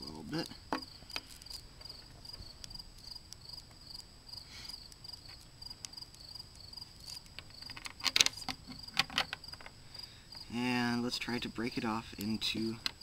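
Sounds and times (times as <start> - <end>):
crickets chirping: 0.0 - 13.0
magnet balls clicking together: 0.2 - 1.7, 4.8 - 9.8, 11.8 - 13.0.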